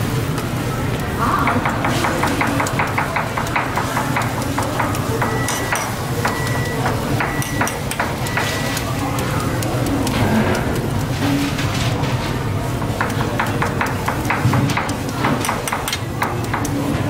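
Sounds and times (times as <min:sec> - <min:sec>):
metal ladle tapping on steel griddle: 0:01.4 - 0:08.8, 0:12.8 - 0:16.8.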